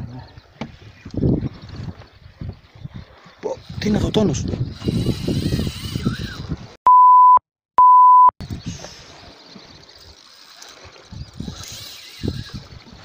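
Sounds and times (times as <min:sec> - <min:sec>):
electronic bleeps: 0:06.9 - 0:08.3.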